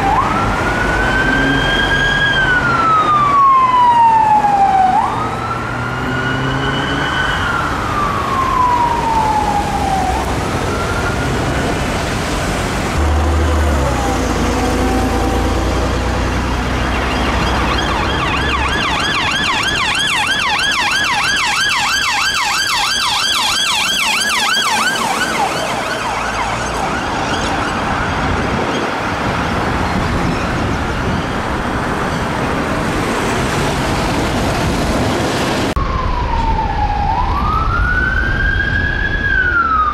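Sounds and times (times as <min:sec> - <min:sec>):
police siren yelping: 0:00.0 - 0:11.8, 0:13.0 - 0:28.5, 0:35.8 - 0:39.9
police siren wailing: 0:00.0 - 0:12.3, 0:12.9 - 0:29.2, 0:35.3 - 0:39.9
traffic noise: 0:00.0 - 0:39.9.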